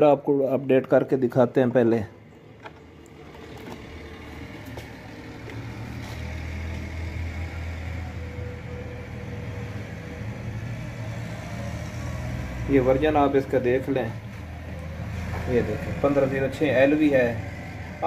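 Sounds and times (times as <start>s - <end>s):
low engine rumble: 2.1s - 18.0s.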